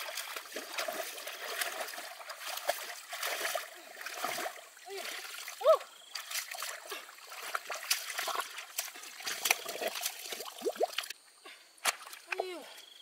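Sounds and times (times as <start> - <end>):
shallow water trickling and splashing: 0.0 - 11.4.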